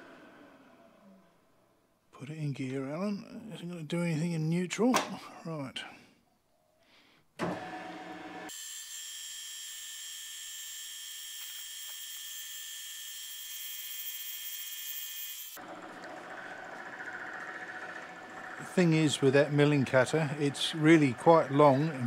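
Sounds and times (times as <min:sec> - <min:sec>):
milling machine whine: 0:15.6 - 0:22.0.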